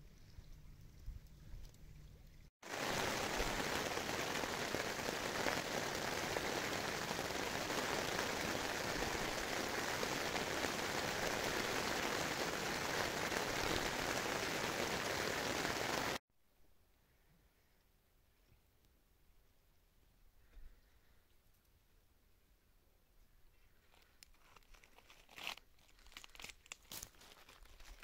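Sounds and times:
rain on a tent: 2.6s - 16.2s.

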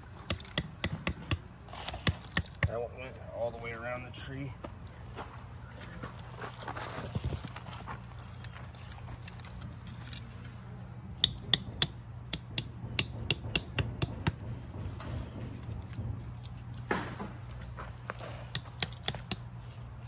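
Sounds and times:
steady low hum: 0.0s - 20.0s
footsteps on loose soil: 4.6s - 8.4s.

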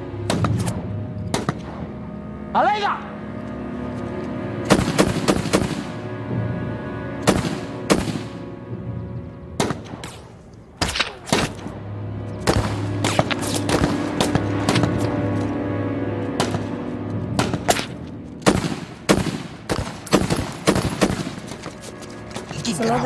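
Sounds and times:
film score of low notes: 0.0s - 23.0s
gunshots ringing: 4.7s - 6.0s, 7.2s - 8.5s, 9.6s - 11.8s, 12.4s - 15.2s, 17.4s - 21.6s.

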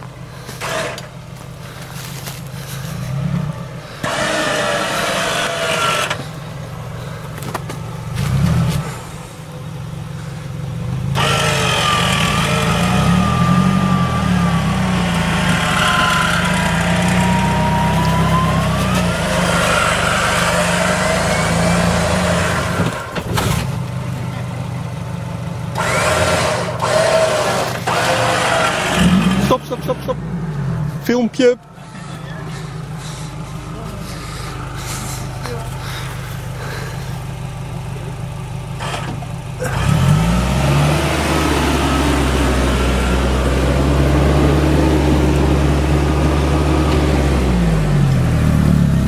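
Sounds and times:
van engine running: 0.0s - 49.0s
winch whine: 11.1s - 23.6s, 25.7s - 29.6s.

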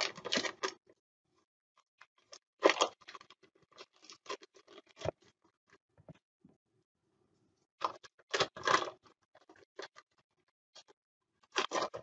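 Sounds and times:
paper wrapper crinkling: 7.8s - 10.1s, 10.8s - 12.0s.

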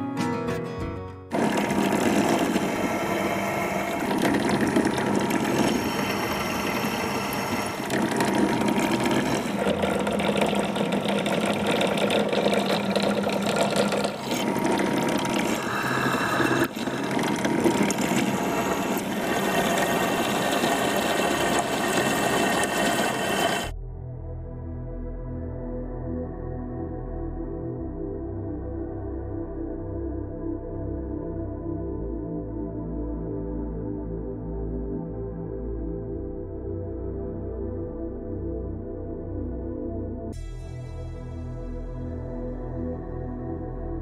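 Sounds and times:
drill cutting into metal: 1.3s - 23.7s
drill press motor hum: 1.3s - 23.7s.

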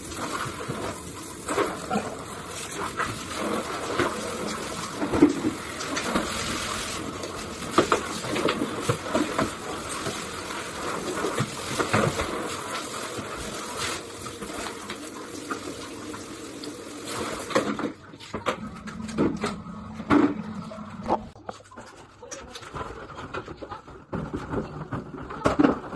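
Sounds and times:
shower water spraying into bathtub: 0.0s - 18.0s.

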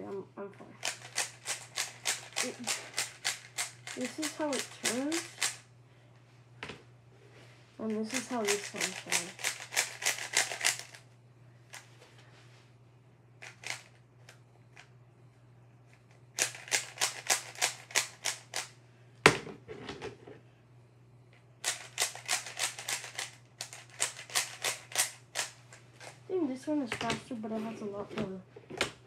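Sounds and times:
puzzle cube clicking turns: 0.8s - 5.6s, 8.1s - 11.0s, 13.4s - 13.9s, 16.4s - 18.7s, 21.6s - 26.1s.

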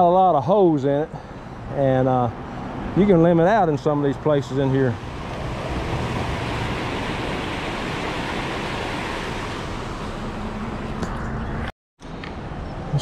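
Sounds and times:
traffic on wet road: 2.4s - 12.3s
car driving past: 4.4s - 11.7s.

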